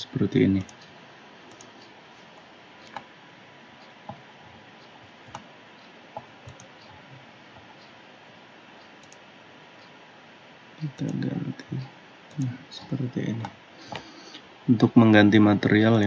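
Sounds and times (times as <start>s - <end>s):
faint steady hiss: 0.0s - 16.0s
computer mouse clicking: 0.6s - 0.9s, 1.5s - 3.1s, 4.1s - 5.5s, 6.2s - 7.9s, 8.8s - 9.3s, 10.8s - 11.3s, 12.3s - 14.1s.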